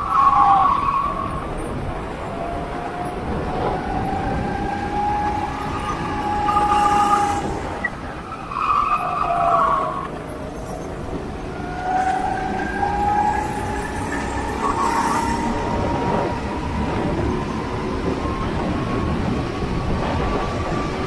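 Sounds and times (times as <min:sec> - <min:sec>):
go-kart engine whining: 0:00.0 - 0:21.0.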